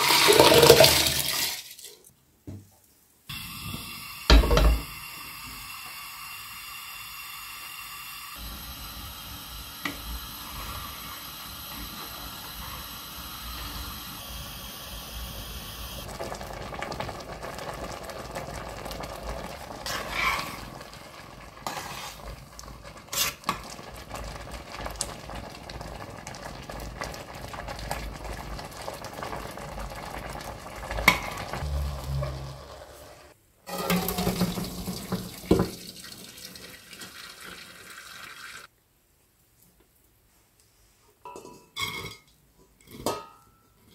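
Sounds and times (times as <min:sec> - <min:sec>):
water poured into a metal colander: 0:00.0 - 0:02.0, 0:33.7 - 0:38.7
rice simmering in a pot: 0:03.3 - 0:32.6.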